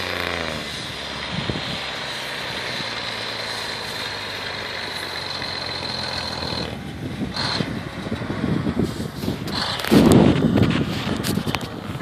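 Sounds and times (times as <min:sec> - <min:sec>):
crackling rustle of snow: 0:00.0 - 0:06.1, 0:08.7 - 0:12.0
snowplow engine under load: 0:00.0 - 0:12.0.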